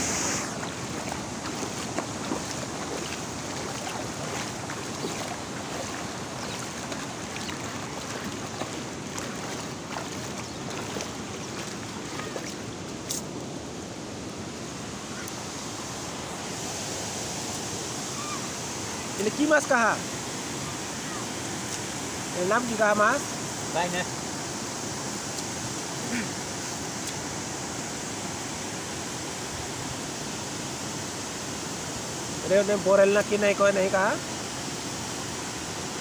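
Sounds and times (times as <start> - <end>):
steady rushing hiss: 0.0 - 4.7
feet splashing through water: 0.1 - 13.3.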